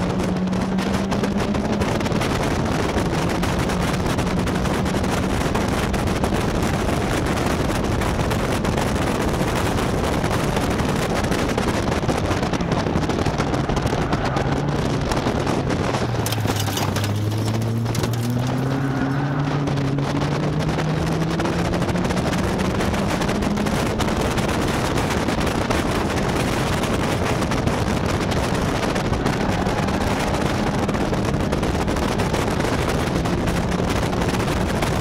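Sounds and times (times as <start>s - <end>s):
race car engine running hard: 0.0s - 35.0s
wind buffeting on microphone: 0.0s - 35.0s.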